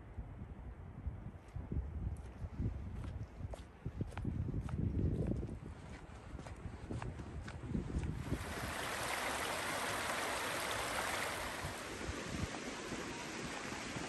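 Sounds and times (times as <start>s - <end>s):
footsteps on trail: 2.1s - 8.4s
rushing stream water: 8.2s - 14.0s.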